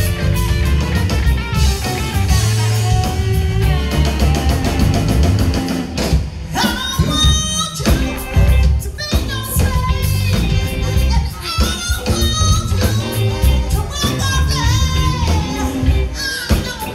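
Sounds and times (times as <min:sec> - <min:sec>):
bass guitar: 0:00.0 - 0:16.9
drums: 0:00.0 - 0:16.9
electric guitar: 0:00.0 - 0:16.9
woman singing: 0:06.5 - 0:16.9.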